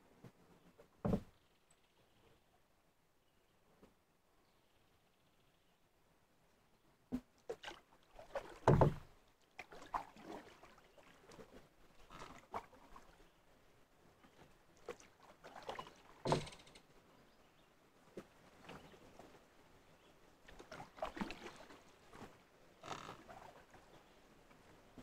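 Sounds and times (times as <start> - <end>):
canoe paddle strokes in water: 7.1 - 16.7, 20.4 - 25.0.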